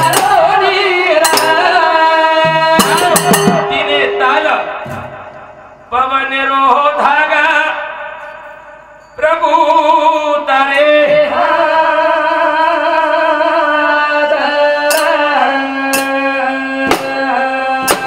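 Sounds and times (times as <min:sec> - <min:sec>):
men singing devotional song: 0:00.0 - 0:04.1, 0:09.2 - 0:18.0
sharp percussion strikes: 0:00.0 - 0:06.0, 0:14.8 - 0:18.0.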